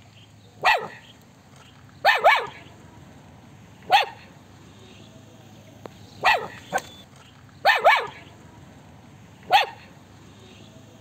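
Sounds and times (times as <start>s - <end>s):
puppy barking: 0.6s - 1.1s, 2.0s - 2.7s, 3.8s - 4.3s, 6.2s - 7.0s, 7.6s - 8.3s, 9.4s - 10.0s.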